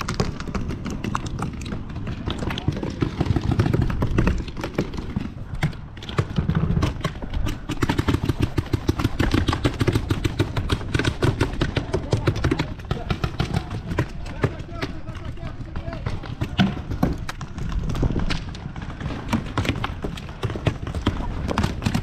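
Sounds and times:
paintball markers firing: 0.0s - 22.0s.

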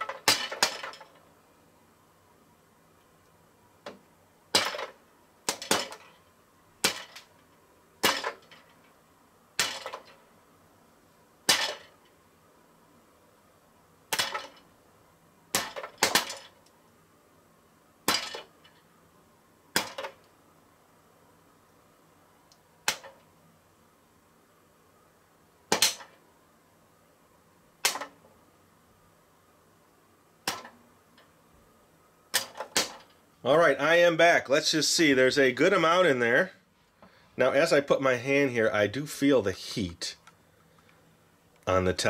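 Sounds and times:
popcorn kernels popping: 0.0s - 1.1s, 4.5s - 6.2s, 6.8s - 7.3s, 8.0s - 8.8s, 9.6s - 10.2s, 11.4s - 12.0s, 14.1s - 14.6s, 15.5s - 16.7s, 18.0s - 18.8s, 19.7s - 20.3s, 22.8s - 23.2s, 25.7s - 26.1s, 27.8s - 28.2s, 30.4s - 30.8s, 32.3s - 33.1s.

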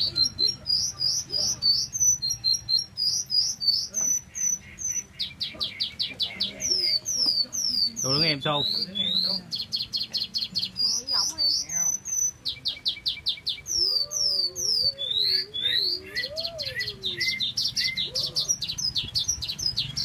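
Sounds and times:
lark singing trills: 0.0s - 20.0s.

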